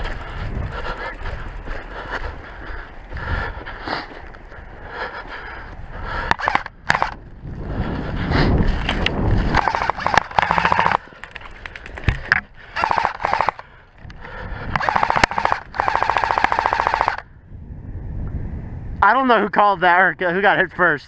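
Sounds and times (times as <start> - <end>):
running through snow: 0.0 - 6.3, 7.1 - 13.5
airsoft rifle full-auto bursts: 6.3 - 7.2, 9.6 - 11.0, 12.8 - 13.6, 14.8 - 17.2.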